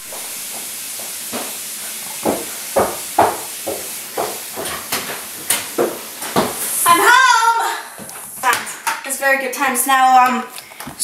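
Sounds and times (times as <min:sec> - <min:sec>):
footsteps: 0:00.0 - 0:07.0
steady hiss: 0:00.0 - 0:08.9.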